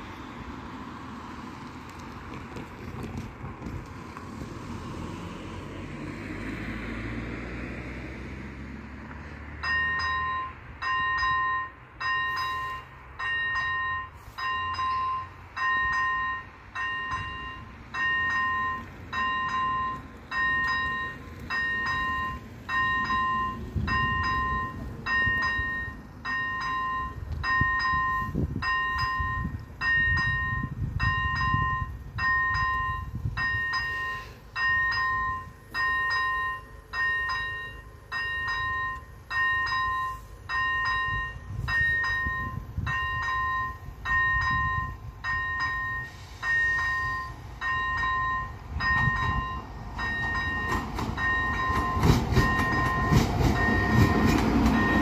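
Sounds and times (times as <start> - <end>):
car engine driving past: 4.0 - 9.8
level crossing warning bell: 9.5 - 55.0.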